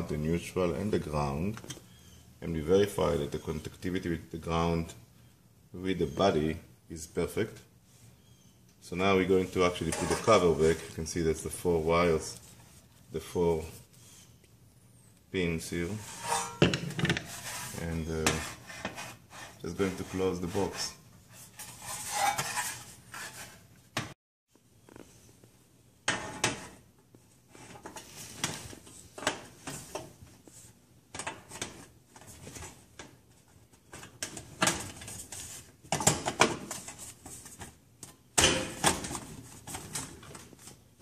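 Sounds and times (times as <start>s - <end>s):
sheet metal clattering and scraping: 15.9s - 19.0s.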